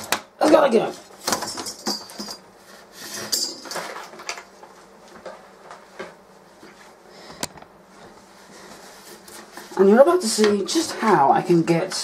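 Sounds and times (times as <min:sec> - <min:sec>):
computer hardware and cables rattling: 0:00.0 - 0:02.5, 0:03.1 - 0:04.6.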